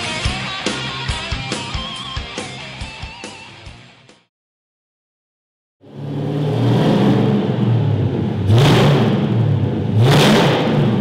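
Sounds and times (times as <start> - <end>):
car engine revving: 5.8 - 11.0.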